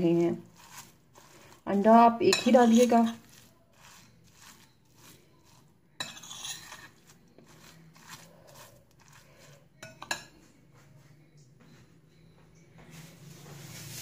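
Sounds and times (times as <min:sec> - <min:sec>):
spoon scraping glass bowl: 0:00.0 - 0:10.4
spoon clinking on glass: 0:02.3 - 0:05.2, 0:06.0 - 0:08.2, 0:09.8 - 0:10.4.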